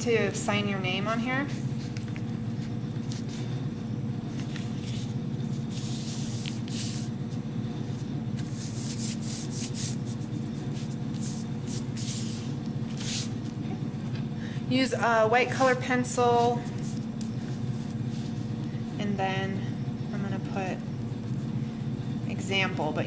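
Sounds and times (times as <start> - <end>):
low background hum: 0.0 - 23.0
palms rubbing over paper: 1.2 - 3.6, 4.3 - 13.6, 16.1 - 18.7.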